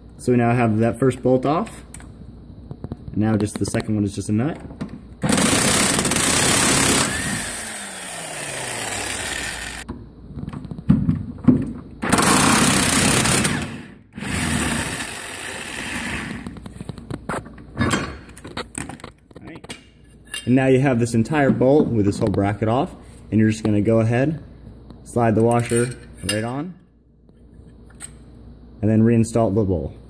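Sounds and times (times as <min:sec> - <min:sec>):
impact wrench running: 0:05.2 - 0:09.9, 0:12.0 - 0:16.6.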